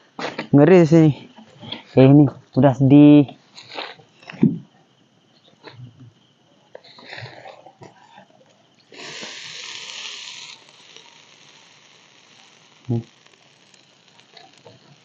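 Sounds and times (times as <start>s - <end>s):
water hissing on campfire embers: 8.6s - 15.0s.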